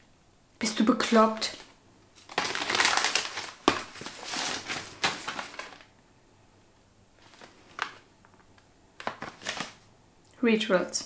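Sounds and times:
paper rustling and crinkling: 0:01.0 - 0:05.9, 0:07.2 - 0:08.4, 0:09.0 - 0:09.9.

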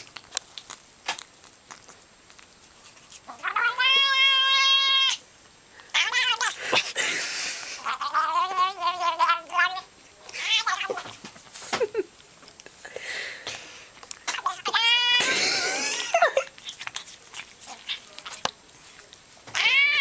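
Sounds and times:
cat yowling: 0:03.3 - 0:05.2, 0:05.9 - 0:06.6, 0:07.8 - 0:11.1, 0:14.3 - 0:15.3, 0:19.5 - 0:20.0.

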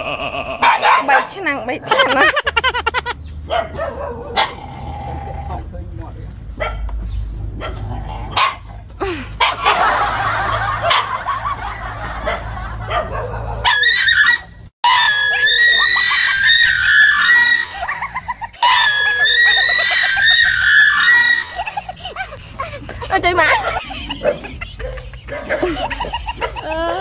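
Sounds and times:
dog barking: 0:00.6 - 0:01.4, 0:03.5 - 0:04.6, 0:06.6 - 0:06.9, 0:07.6 - 0:08.7, 0:10.6 - 0:11.2, 0:12.2 - 0:15.0, 0:23.6 - 0:25.8.

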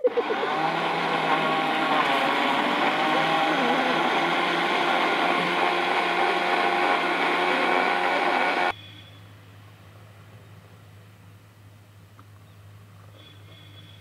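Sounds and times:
mixer grinder blending: 0:00.0 - 0:08.7.

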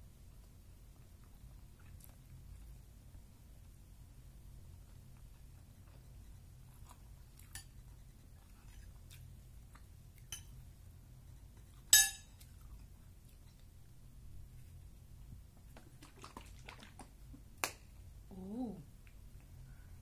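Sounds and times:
low steady hum: 0:00.0 - 0:20.0
metal spoon clinking on plate: 0:10.3 - 0:10.6, 0:11.9 - 0:12.3.

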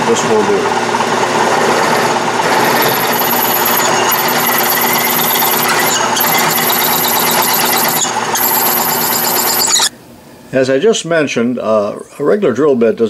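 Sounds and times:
metal lathe drilling aluminium: 0:00.3 - 0:09.9.

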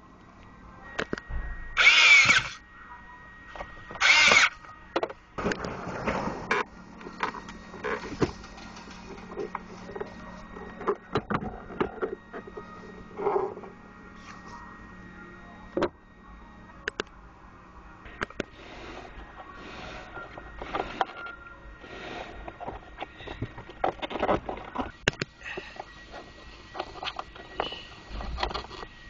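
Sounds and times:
cordless screwdriver whirring: 0:01.8 - 0:02.6, 0:04.0 - 0:04.6.

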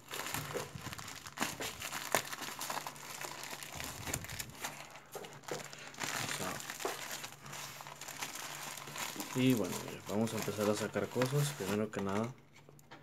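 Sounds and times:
plastic mailer bag crinkling: 0:00.0 - 0:12.3.

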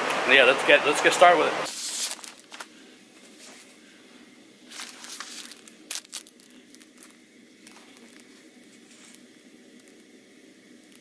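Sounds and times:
plastic bag rustling and crinkling: 0:01.7 - 0:03.8, 0:04.6 - 0:10.0.

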